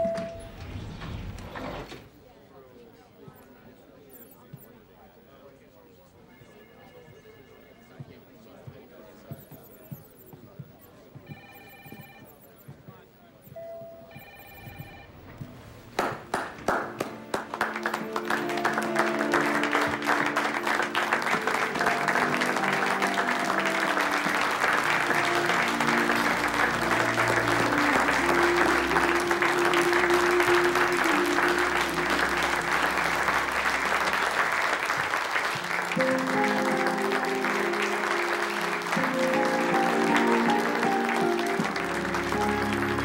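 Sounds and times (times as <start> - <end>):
people clapping: 15.9 - 43.0
music with held melodic notes: 16.8 - 43.0.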